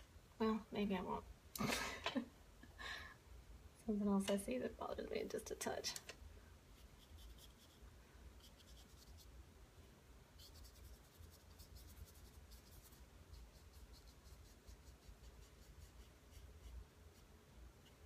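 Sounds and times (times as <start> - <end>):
low steady hum: 0.0 - 18.0
brush scratching on canvas: 6.8 - 7.8, 8.4 - 9.3, 10.4 - 18.0.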